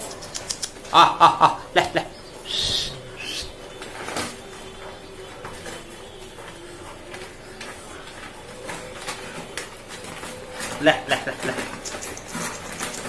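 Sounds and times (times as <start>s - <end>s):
short animal calls: 2.5s - 3.6s.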